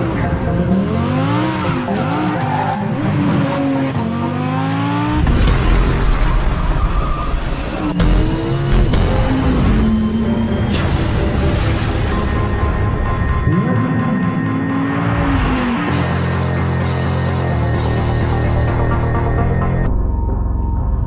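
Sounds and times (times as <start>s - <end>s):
sports car engine revving: 0.0s - 5.6s
music: 0.0s - 21.0s.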